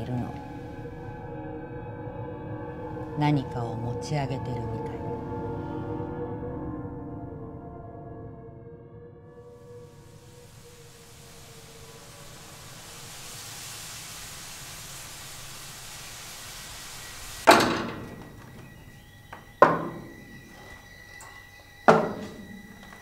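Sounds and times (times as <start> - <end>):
hissing swell: 9.6 - 23.0
heavy ringing impact hits: 17.5 - 19.0, 19.6 - 20.8, 21.9 - 23.0.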